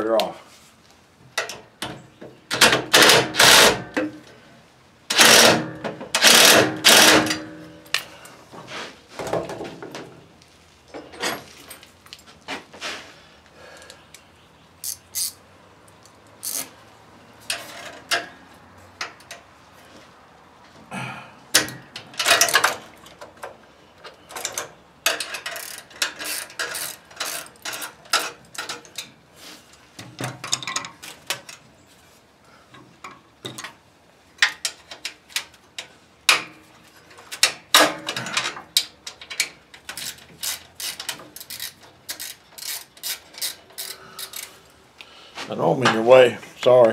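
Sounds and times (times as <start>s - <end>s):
hand tools clicking and scraping metal: 2.5s - 4.4s, 5.1s - 10.1s, 13.7s - 16.8s, 17.4s - 19.5s, 21.5s - 31.7s, 32.6s - 46.1s
metal parts rattling: 21.6s - 22.9s, 24.3s - 29.1s, 37.1s - 44.7s.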